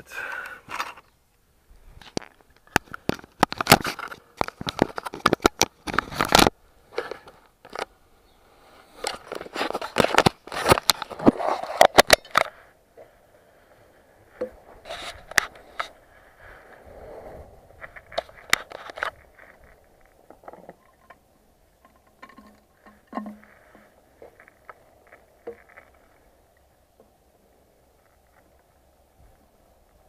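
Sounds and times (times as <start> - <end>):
plastic clicks and scrapes: 2.0 - 7.9, 9.0 - 12.6, 17.8 - 21.2.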